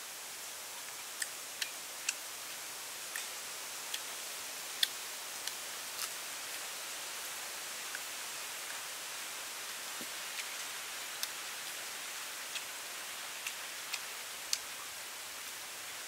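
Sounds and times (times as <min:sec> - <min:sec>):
steady outdoor hiss: 0:00.0 - 0:16.0.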